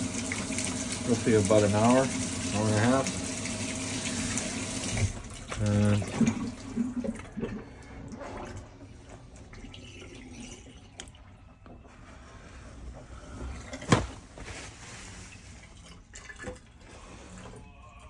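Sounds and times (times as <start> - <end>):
water running from a tap: 0.0 - 7.2.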